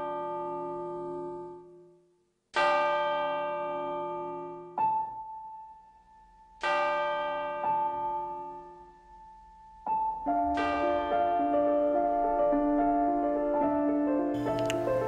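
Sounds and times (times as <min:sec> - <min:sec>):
slow piano music: 0:03.7 - 0:15.0.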